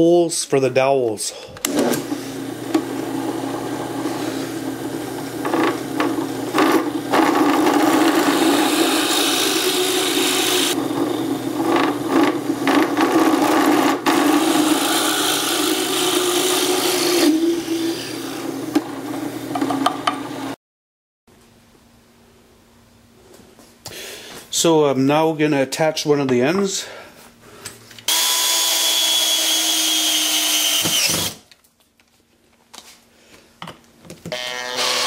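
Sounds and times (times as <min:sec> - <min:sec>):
drill press motor humming: 0:01.6 - 0:20.6, 0:28.1 - 0:31.4
drill bit boring into wood: 0:02.7 - 0:18.8, 0:28.1 - 0:31.4, 0:34.3 - 0:35.0.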